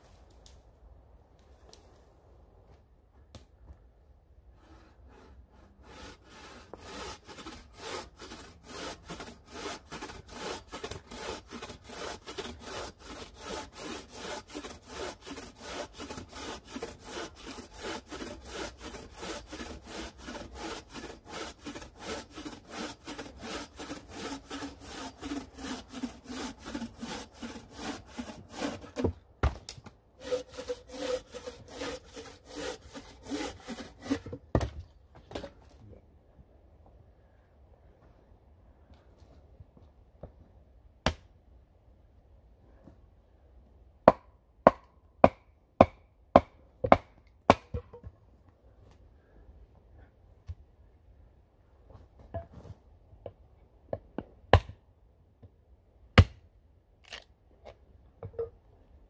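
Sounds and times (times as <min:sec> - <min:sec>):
bow saw cutting log: 0:04.6 - 0:29.1, 0:30.2 - 0:34.4.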